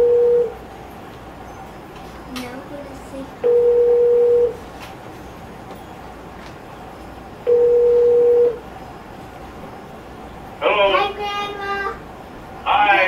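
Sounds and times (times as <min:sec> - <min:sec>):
video phone ringing tone: 0:00.0 - 0:00.6, 0:03.4 - 0:04.6, 0:07.5 - 0:08.6.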